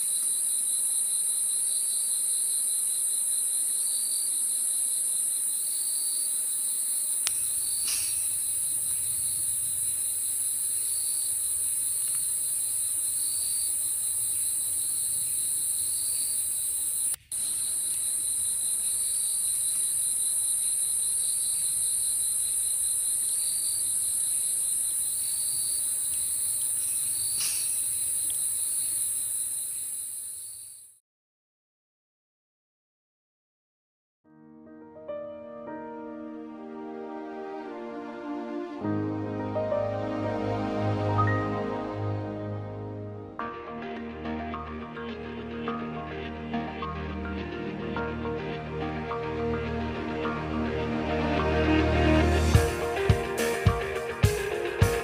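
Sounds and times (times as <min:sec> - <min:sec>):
cricket trilling: 0:00.0 - 0:31.0
insects droning: 0:00.0 - 0:31.0, 0:47.8 - 0:55.0.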